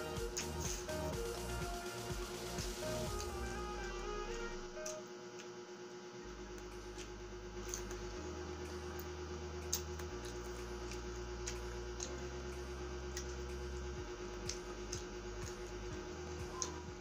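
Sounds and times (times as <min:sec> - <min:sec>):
soft background music: 0:00.0 - 0:05.0
chewing crispy chicken skin: 0:06.5 - 0:08.1, 0:09.0 - 0:12.2.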